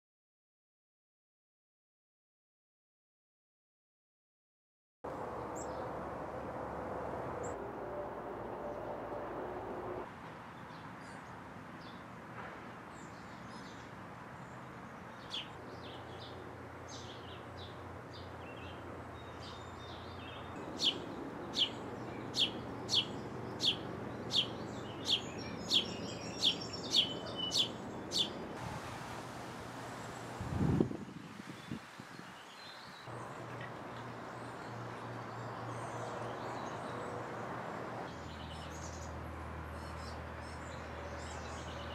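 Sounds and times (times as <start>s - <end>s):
songbirds chirping: 12.8s - 28.6s, 29.9s - 41.9s.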